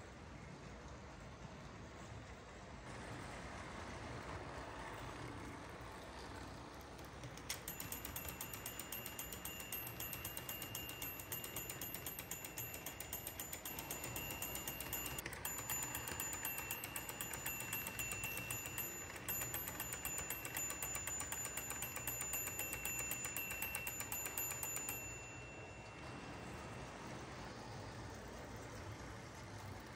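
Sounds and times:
fast even ticking: 0:07.5 - 0:26.6.

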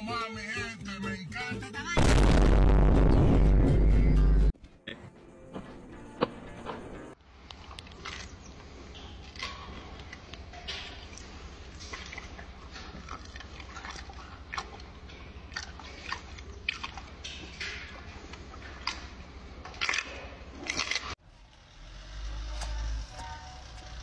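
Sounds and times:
low rumble: 0:02.0 - 0:04.5
gorilla chewing: 0:07.4 - 0:21.2.

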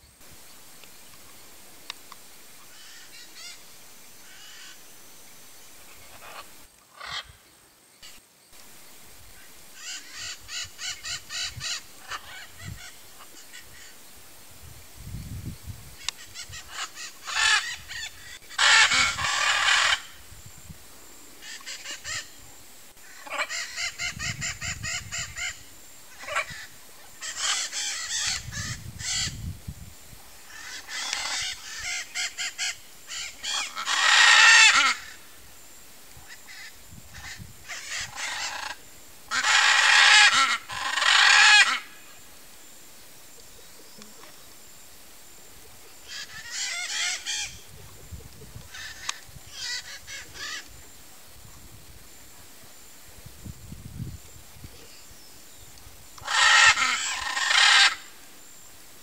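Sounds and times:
macaws squawking harshly: 0:06.0 - 0:07.3, 0:09.8 - 0:13.9, 0:16.2 - 0:20.2, 0:21.4 - 0:22.4, 0:23.0 - 0:29.4, 0:30.5 - 0:35.2, 0:36.3 - 0:42.0, 0:46.0 - 0:47.7, 0:48.7 - 0:50.7, 0:56.2 - 0:58.1.

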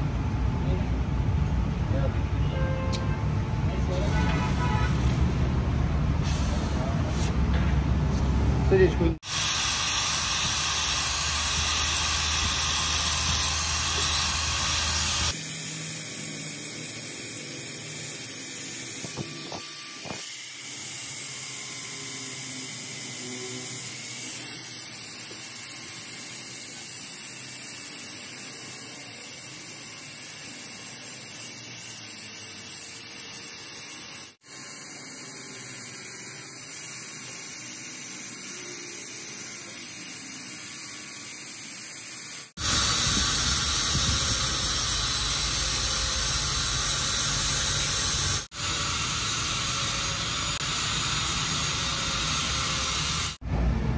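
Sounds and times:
angle grinder grinding metal: 0:08.7 - 0:53.4.

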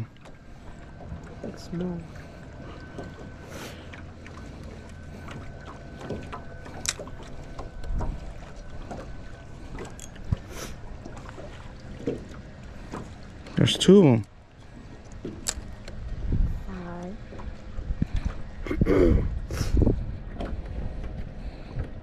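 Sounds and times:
water lapping at hull: 0:00.0 - 0:22.0
wind on microphone: 0:16.0 - 0:17.0, 0:17.7 - 0:22.0.

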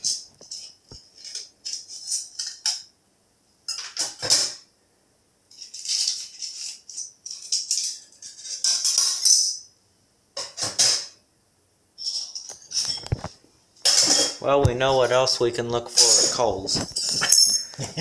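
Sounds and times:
glass shards clinking on tile: 0:05.5 - 0:09.7, 0:12.0 - 0:13.2, 0:13.8 - 0:14.4, 0:16.0 - 0:17.8
glass dropped into cardboard box: 0:16.0 - 0:17.7.

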